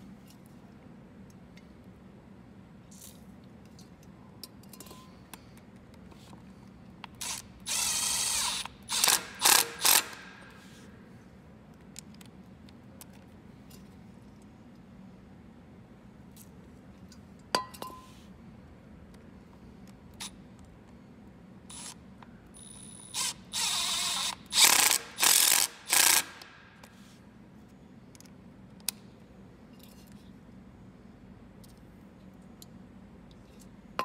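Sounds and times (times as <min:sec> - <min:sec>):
impact driver on a bolt: 0:08.4 - 0:10.6, 0:24.2 - 0:26.9.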